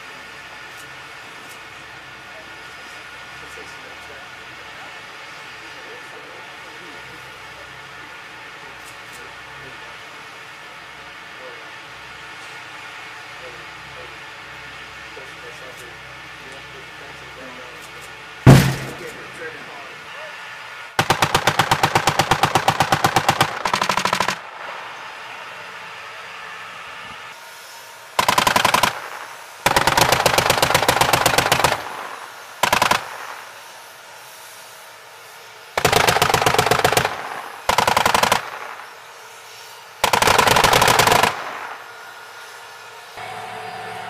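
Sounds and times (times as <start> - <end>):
machine gun bursts: 18.5 - 19.2, 21.0 - 24.4, 28.2 - 33.4, 35.8 - 38.8, 40.0 - 41.7.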